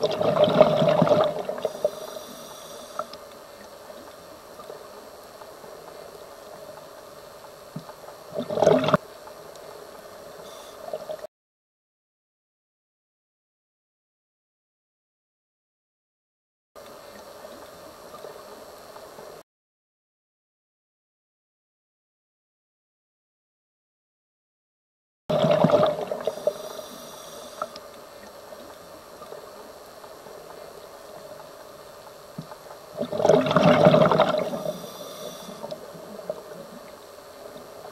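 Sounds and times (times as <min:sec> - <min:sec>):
regulator bubbles bursting: 0:00.0 - 0:01.7, 0:08.3 - 0:09.0, 0:25.3 - 0:26.3, 0:32.9 - 0:34.7
underwater hiss and hum: 0:00.0 - 0:11.3, 0:16.8 - 0:19.4, 0:25.3 - 0:37.9.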